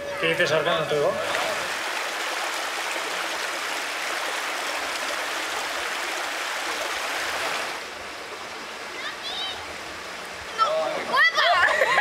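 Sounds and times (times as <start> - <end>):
stream rushing over stones: 0.9 - 12.0.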